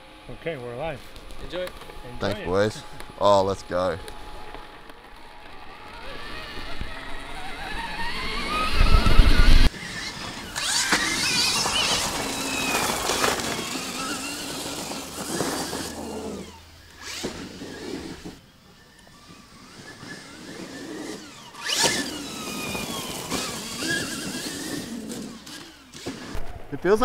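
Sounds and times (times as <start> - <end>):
electric motorbike motor whining: 0.0 - 26.4
tyre noise on dirt: 5.8 - 26.7.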